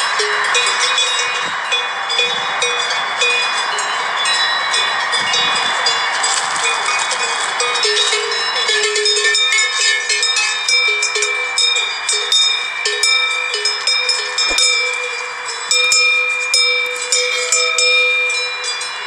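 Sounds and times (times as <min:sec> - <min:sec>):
sheep bells clanking: 0:00.0 - 0:19.0.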